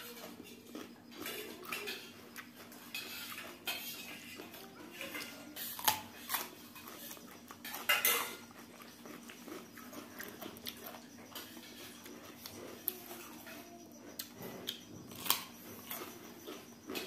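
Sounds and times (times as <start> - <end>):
spoons clinking on steel plates: 7.6 - 8.5.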